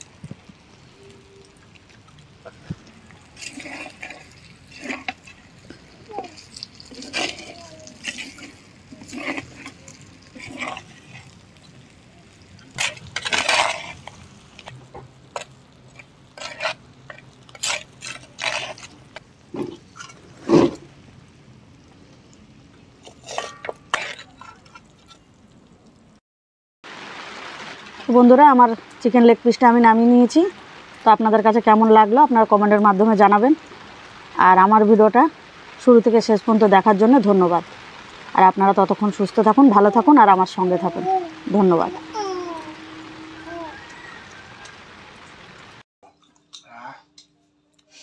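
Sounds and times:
wet gravy sloshing: 1.5s - 21.0s
metal spatula scraping clay pot: 2.8s - 11.4s, 12.7s - 19.0s, 23.0s - 25.2s, 40.2s - 44.4s.

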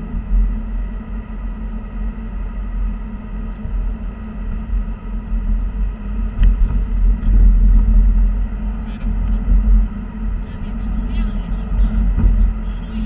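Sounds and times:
car cabin road rumble: 3.3s - 13.0s.

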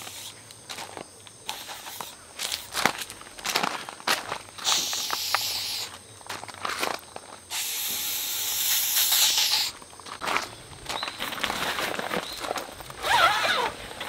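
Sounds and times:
aerosol spray hissing: 0.0s - 0.4s, 1.5s - 2.8s, 4.6s - 5.9s, 7.5s - 9.8s.

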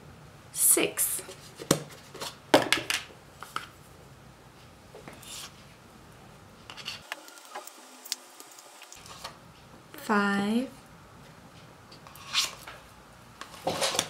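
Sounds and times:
metal spoon scraping tub: 13.4s - 14.0s
plastic tub rustling and crackling: 13.4s - 14.0s.

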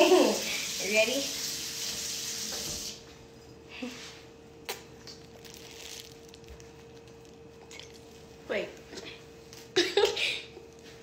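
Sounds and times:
water running from tap: 0.0s - 3.0s.

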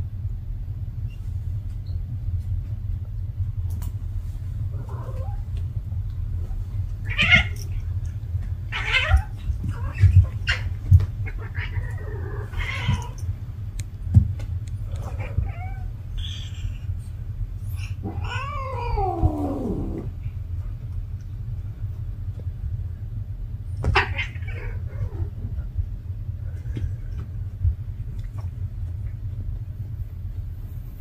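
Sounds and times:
low hum: 0.0s - 31.0s
cat yowling: 7.1s - 7.7s, 17.8s - 20.1s.

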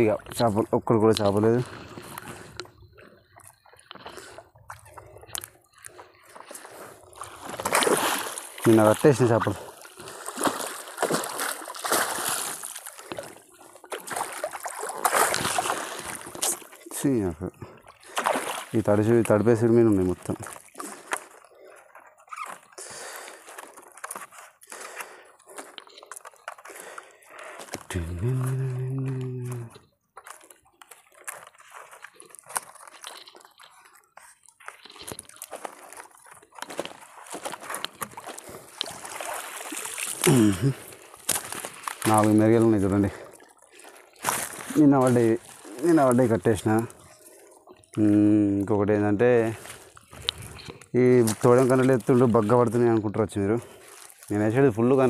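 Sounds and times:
fishing net hauled from water: 0.0s - 55.0s
water splashing and dripping: 1.2s - 21.8s, 30.3s - 48.7s.

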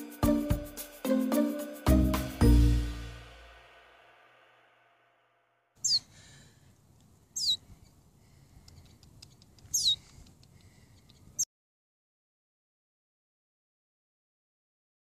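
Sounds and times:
finch calling: 5.8s - 6.1s, 7.4s - 7.7s, 9.6s - 10.1s.

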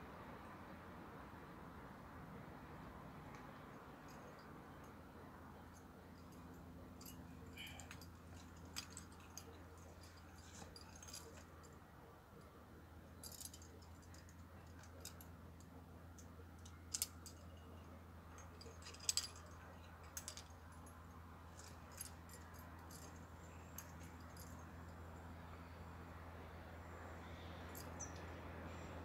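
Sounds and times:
low steady hum: 0.0s - 29.0s
climbing gear clinking: 5.6s - 11.8s, 12.4s - 25.0s, 27.6s - 28.9s.

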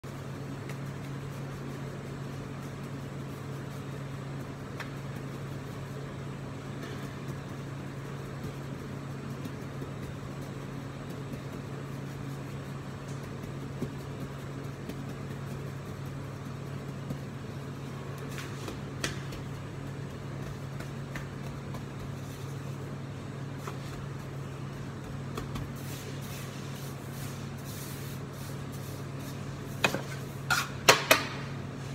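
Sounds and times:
kitchen machinery humming: 0.1s - 31.9s
hands tapping dough on counter: 6.8s - 22.5s.

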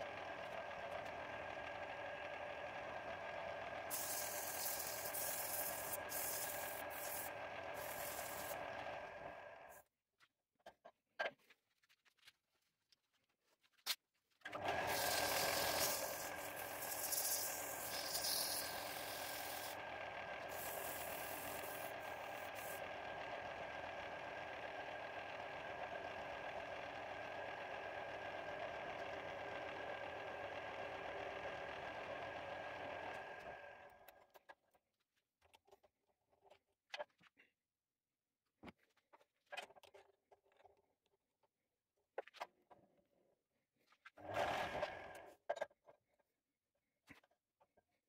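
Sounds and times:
lathe motor whining: 0.0s - 9.7s, 14.6s - 33.8s
cloth rubbing spinning wood: 3.9s - 8.6s, 14.8s - 19.8s, 20.5s - 22.8s.

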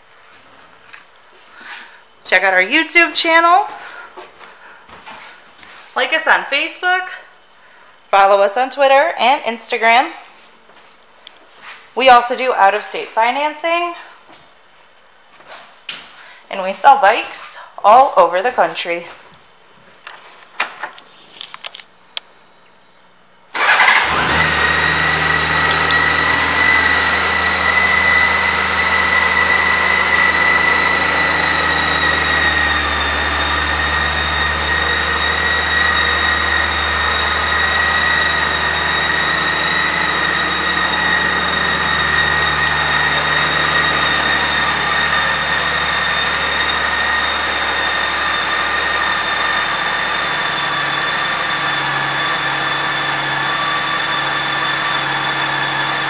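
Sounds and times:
motorcycle engine starting and idling: 23.5s - 56.0s
high whine: 24.5s - 51.6s.

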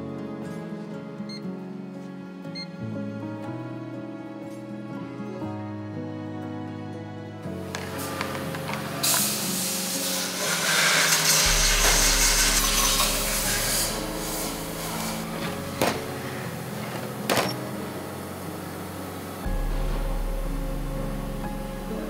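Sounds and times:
background music with held tones: 0.0s - 22.0s
harsh hissing factory noise: 7.8s - 22.0s.

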